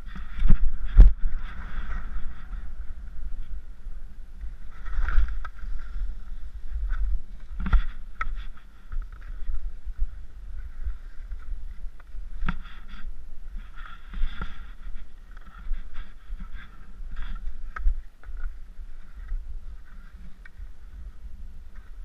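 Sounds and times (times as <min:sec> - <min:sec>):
skis scraping through snow: 0:00.0 - 0:17.8
low wind rumble: 0:00.0 - 0:22.0
skis and poles clicking: 0:04.3 - 0:21.1.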